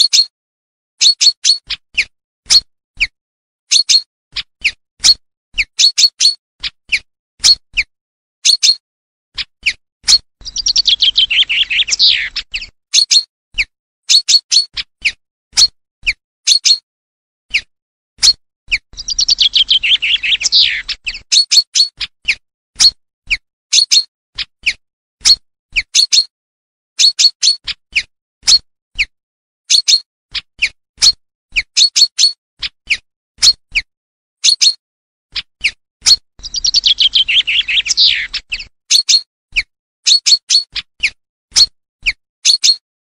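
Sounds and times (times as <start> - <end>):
bird song trill: 0.0 - 0.3, 1.0 - 8.8, 9.4 - 16.8, 17.5 - 26.3, 27.0 - 42.8
bird call notes: 10.4 - 12.7, 18.8 - 21.5, 36.4 - 38.7.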